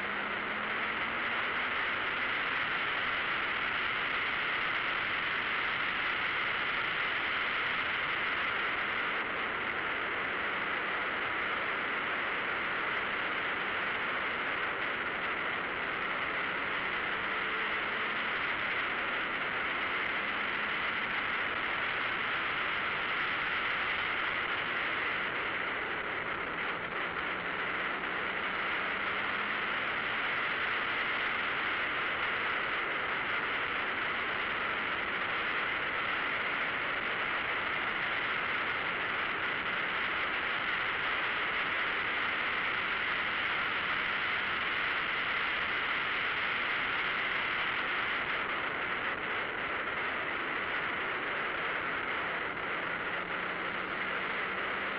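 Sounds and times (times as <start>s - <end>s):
car road noise: 0.0s - 54.9s
rushing wind: 0.0s - 54.9s.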